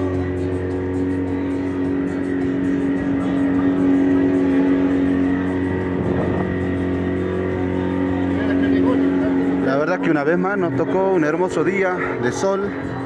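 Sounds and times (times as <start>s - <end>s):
boat engine humming: 0.0s - 13.0s.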